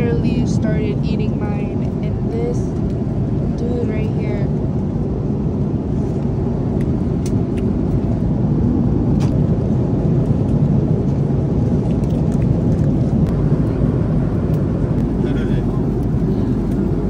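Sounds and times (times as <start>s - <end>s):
airliner cabin drone: 0.0s - 17.0s.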